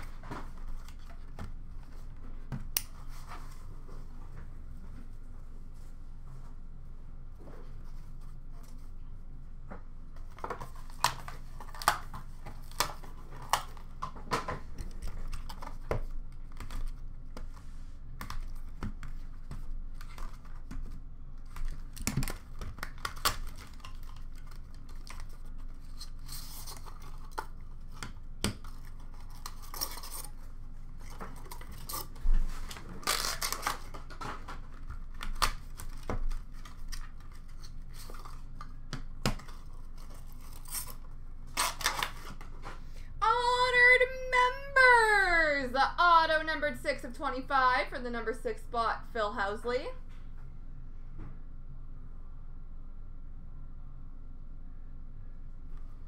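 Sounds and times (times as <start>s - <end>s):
cardboard and plastic tearing: 10.6s - 13.9s, 21.5s - 38.7s, 39.3s - 42.6s.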